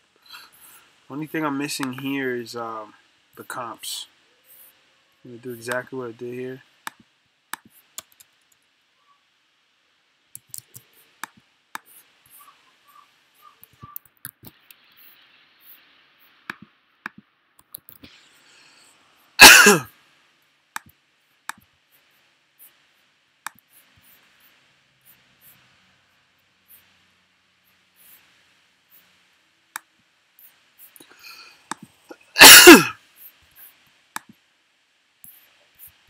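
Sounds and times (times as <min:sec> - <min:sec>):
computer clicks: 0:07.6 - 0:08.3, 0:10.4 - 0:11.9
person coughing: 0:19.4 - 0:19.9, 0:32.4 - 0:33.0.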